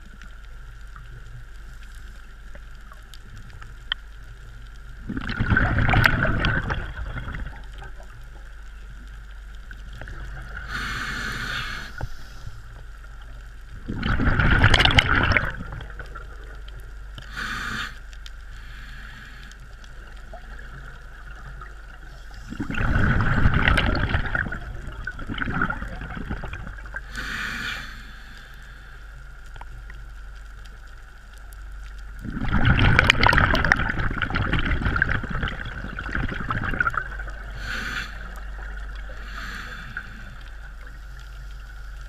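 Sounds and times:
steady faint hiss: 0.0s - 42.0s
bubbling diver exhalations: 5.1s - 7.6s, 22.5s - 27.6s, 32.2s - 40.4s
hissing regulator inhalations: 10.6s - 12.8s, 17.2s - 19.8s, 27.0s - 29.2s, 37.2s - 42.0s.

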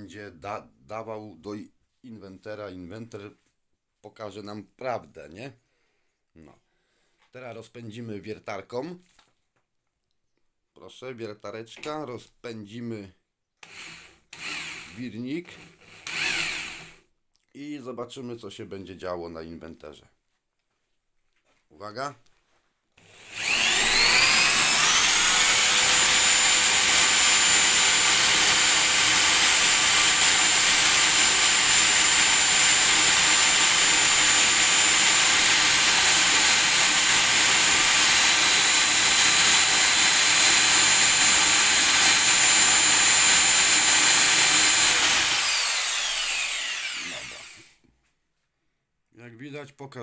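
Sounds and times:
power drill high whine: 13.6s - 17.0s, 23.0s - 47.8s.

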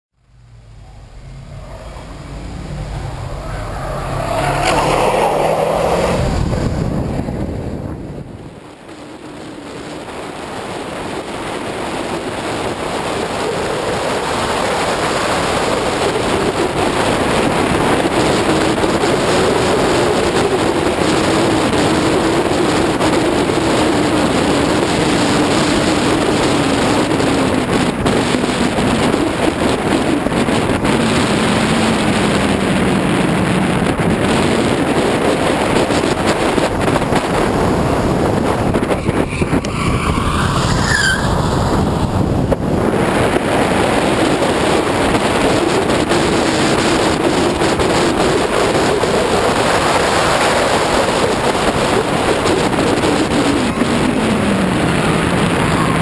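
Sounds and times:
car engine running: 0.1s - 8.4s
heavy wind rush: 0.1s - 56.0s.

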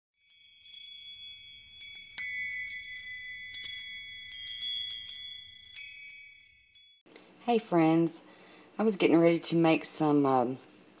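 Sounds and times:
wind chimes ringing: 0.2s - 7.1s.

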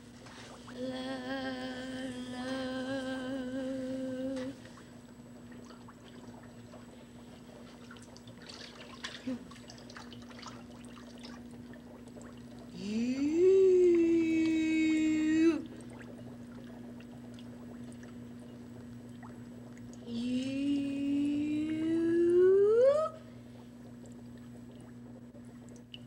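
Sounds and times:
woman humming: 0.7s - 4.6s, 12.7s - 15.8s, 20.0s - 23.3s.

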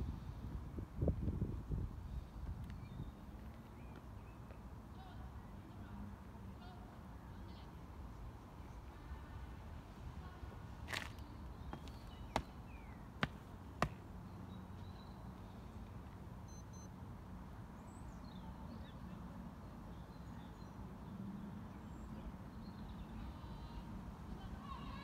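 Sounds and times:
outdoor background noise: 0.0s - 25.0s
sharp knocks on tarmac: 11.7s - 12.6s, 13.2s - 14.0s.

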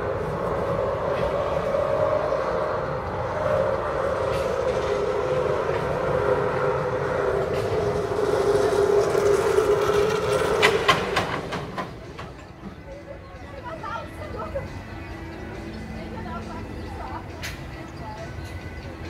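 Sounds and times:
roller coaster rolling hum: 0.0s - 19.0s
roller coaster sharp clacks: 2.8s - 13.0s.

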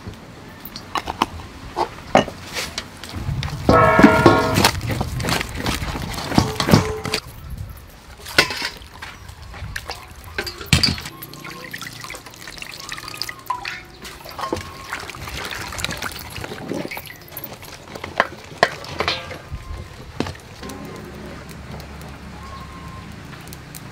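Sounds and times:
water trickling into a bowl: 9.8s - 20.0s.

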